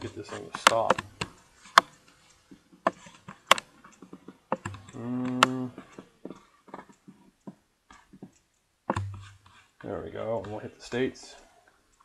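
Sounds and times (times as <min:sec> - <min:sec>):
mouse and keyboard clicks: 0:00.0 - 0:02.0, 0:02.8 - 0:09.6
person humming: 0:04.8 - 0:05.9.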